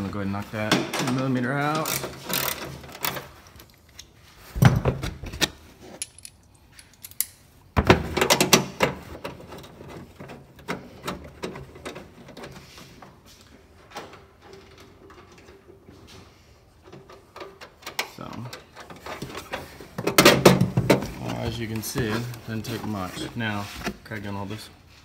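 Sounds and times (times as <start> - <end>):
hand tools clicking on metal: 1.7 - 4.1.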